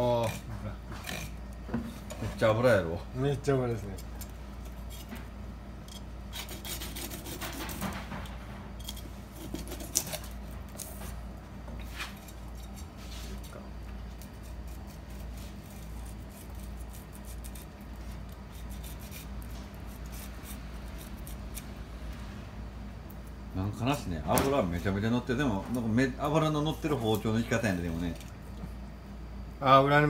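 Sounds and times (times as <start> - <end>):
knife rasping over fish scales: 0.0 - 1.4, 5.9 - 8.0, 8.8 - 11.0, 14.2 - 21.7
steady low hum: 0.0 - 30.0.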